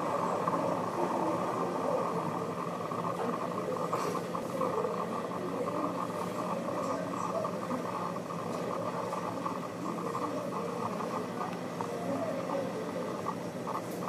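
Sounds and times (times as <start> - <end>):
distant city and rail rumble: 0.0 - 14.0.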